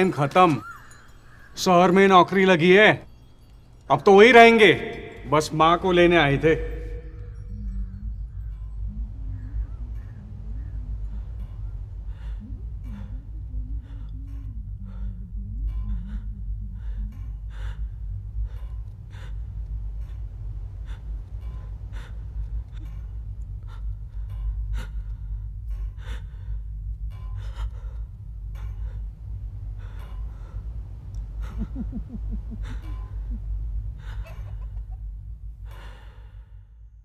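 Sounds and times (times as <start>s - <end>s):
low steady hum: 0.0s - 37.0s
person crying quietly: 31.4s - 35.0s.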